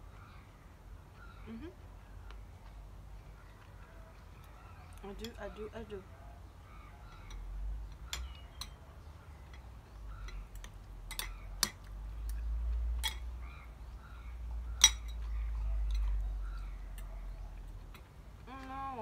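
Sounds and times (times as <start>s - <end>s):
chopsticks and spoon clinking bowls: 7.1s - 13.4s, 14.7s - 18.2s.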